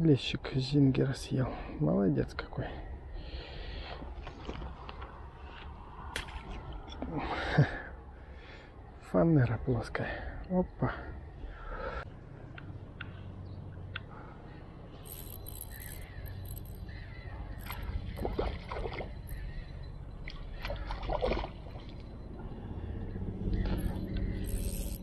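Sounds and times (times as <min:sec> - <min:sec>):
low steady rumble: 0:12.0 - 0:25.0
water splashing and sloshing: 0:17.6 - 0:24.4.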